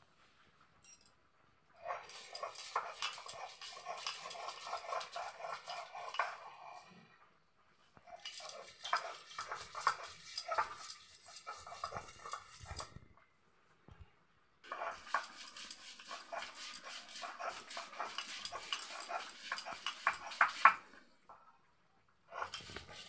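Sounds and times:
grinding stone scraping on slab: 1.8 - 6.9, 8.1 - 13.0, 14.7 - 21.0, 22.4 - 23.0.

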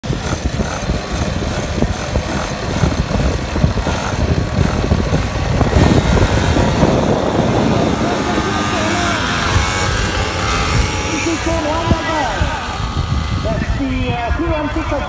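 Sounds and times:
small two-stroke engines buzzing: 0.0 - 15.0.

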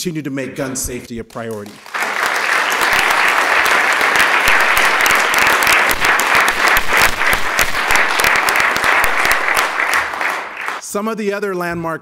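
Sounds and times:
crowd applauding: 1.4 - 10.8.

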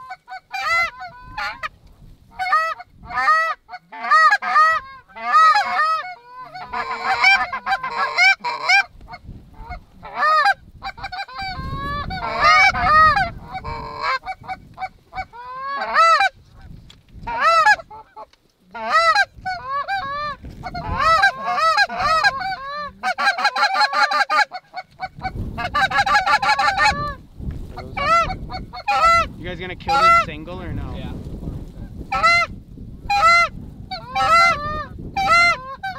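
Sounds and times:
geese honking: 0.0 - 1.7, 2.3 - 27.2, 27.8 - 30.5, 32.1 - 35.9.

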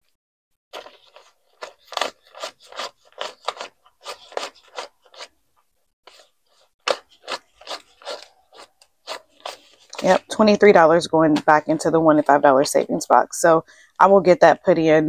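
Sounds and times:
paper bills counted by hand: 0.8 - 5.4, 6.0 - 12.5.

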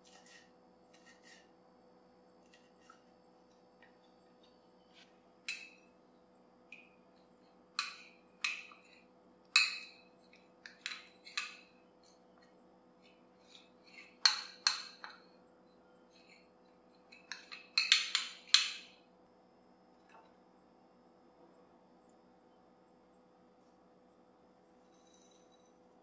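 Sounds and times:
utensil clinking against ceramic bowl: 5.5 - 5.8, 7.8 - 8.9, 9.6 - 11.6, 13.5 - 15.2, 17.0 - 18.9.

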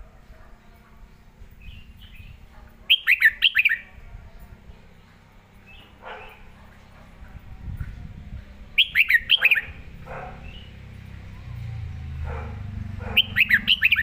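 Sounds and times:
bulbul singing whistled phrases: 1.6 - 3.9, 8.8 - 10.8, 13.1 - 14.0
low background rumble: 3.8 - 14.0.

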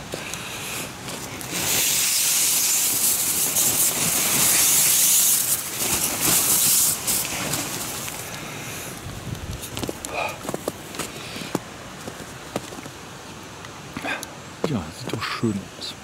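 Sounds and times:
snow sliding off tent fabric: 0.0 - 13.0.

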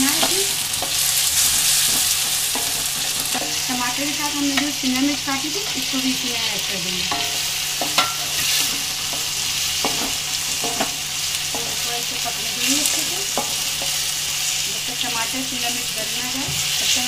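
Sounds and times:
vegetables sizzling in hot oil: 0.0 - 17.0
utensils knocking steel pan: 1.8 - 6.0, 7.0 - 14.1.

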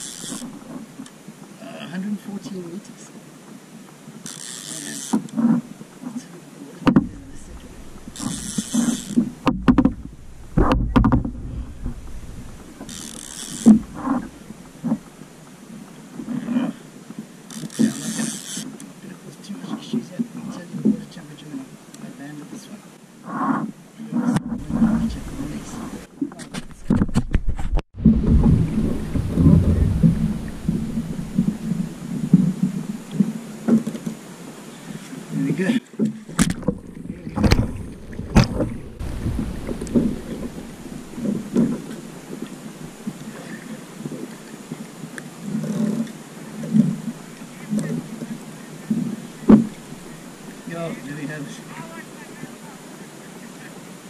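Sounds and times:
water sloshing against hull: 0.0 - 1.6, 3.2 - 53.7
fishing gear knocking on kayak: 6.8 - 15.0, 36.4 - 43.2
wind buffeting microphone: 6.8 - 15.2, 24.4 - 26.1, 26.7 - 33.4, 36.4 - 43.3.

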